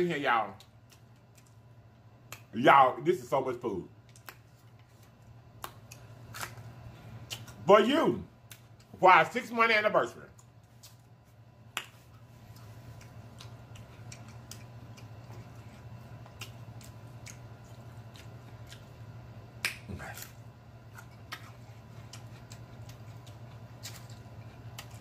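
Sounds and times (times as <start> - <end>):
steady low hum: 0.0 - 25.0
chewing clicks: 12.5 - 18.9.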